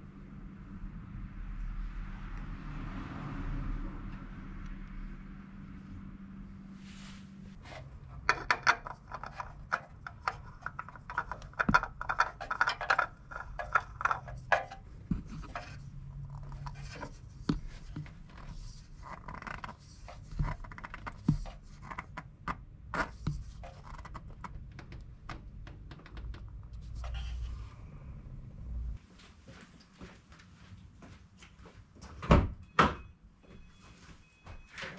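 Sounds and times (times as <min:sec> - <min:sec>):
hands scraping oil filter: 0:06.9 - 0:22.2.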